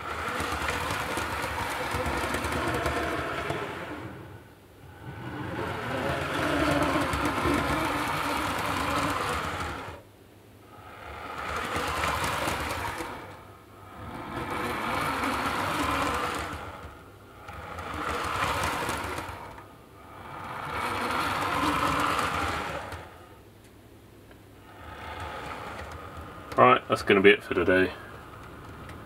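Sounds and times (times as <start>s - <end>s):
model train motor whirring: 0.0s - 10.1s, 10.7s - 23.4s, 24.6s - 29.0s.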